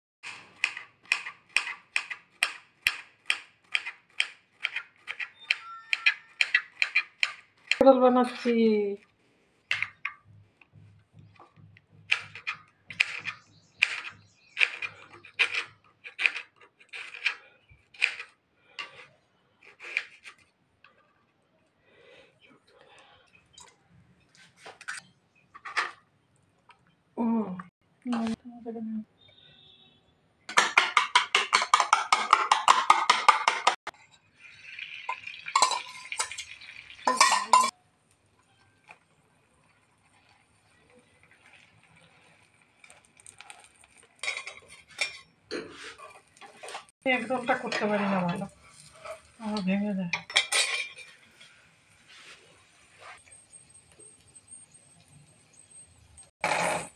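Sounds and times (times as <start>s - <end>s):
spoon beating eggs in metal bowl: 0.7s - 8.3s, 30.6s - 33.8s
spoon scraping a bowl: 4.6s - 8.5s, 12.2s - 20.5s, 37.1s - 37.8s, 42.8s - 51.5s
batter sizzling on hot pan: 34.2s - 49.7s, 51.0s - 55.6s.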